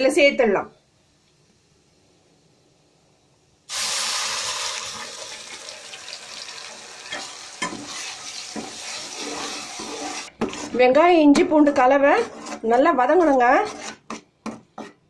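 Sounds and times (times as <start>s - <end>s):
paste sizzling in hot oil: 3.7s - 10.7s.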